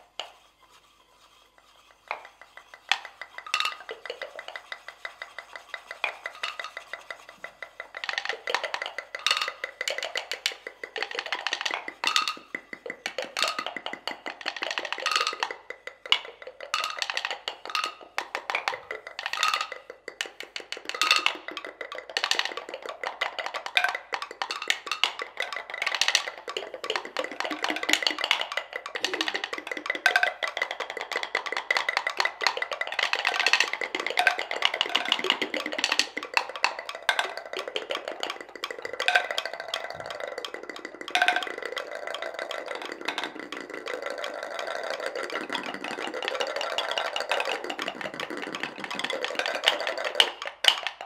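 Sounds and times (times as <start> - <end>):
louder pestle strokes: 0.0 - 13.6
wooden mortars and pestles percussion: 0.0 - 51.0.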